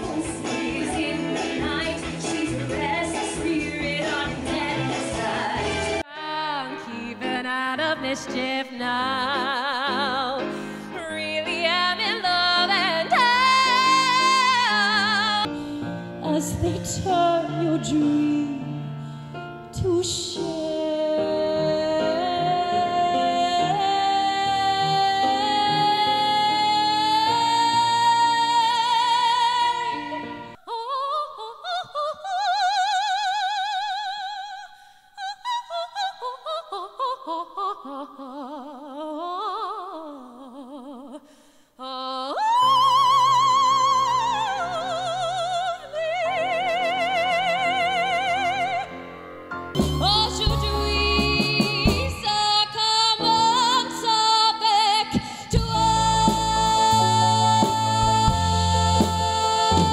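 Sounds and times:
woman singing with vibrato: 0.0 - 15.5, 16.2 - 19.0, 19.8 - 49.0, 49.8 - 59.9
piano and band: 0.0 - 30.6, 42.7 - 59.9.

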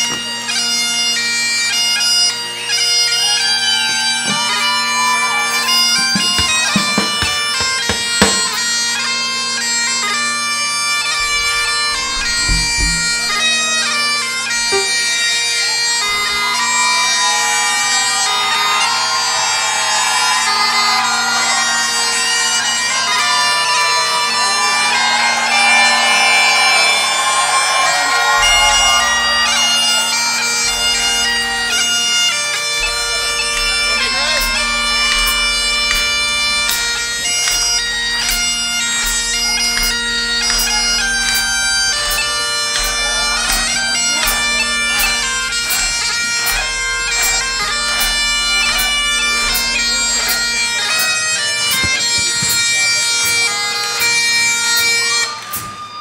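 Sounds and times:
bagpipes playing a melody: 0.0 - 56.0.

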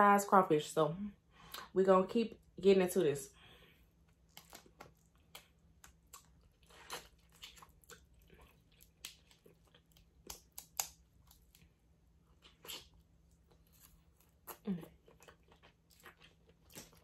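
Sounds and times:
chewing: 4.0 - 17.0.

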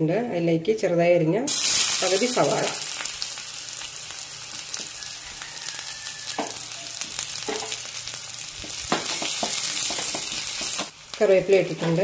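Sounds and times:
onion sizzling in hot oil: 1.5 - 12.0
spoon scraping a pan: 6.2 - 7.9.

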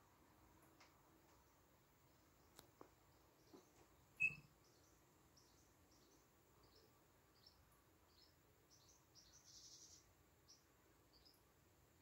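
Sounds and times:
bird chirp: 1.4 - 12.0
faint high bird peeps: 4.2 - 5.6.

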